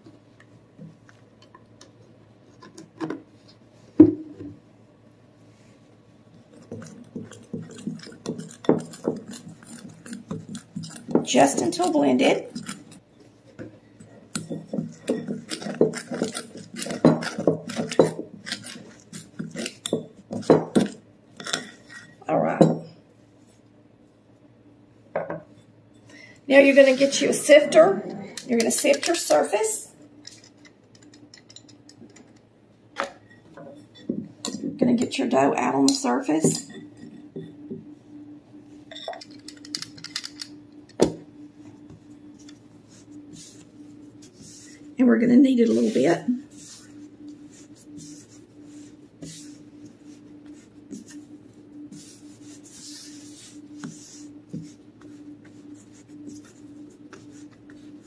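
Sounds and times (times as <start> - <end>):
utensil scraping and knocking bowl: 6.5 - 22.8, 26.5 - 29.6, 33.0 - 37.9, 45.4 - 51.3.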